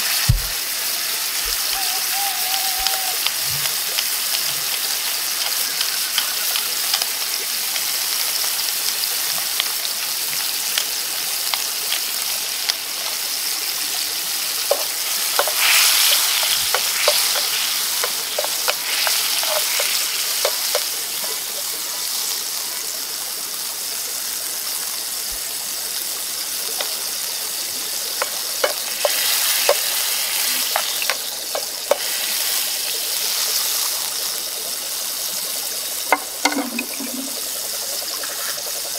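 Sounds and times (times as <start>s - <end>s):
sauce sizzling in a skillet: 0.0s - 38.9s
pops and crackles: 2.5s - 8.5s, 14.6s - 21.7s, 27.8s - 32.2s.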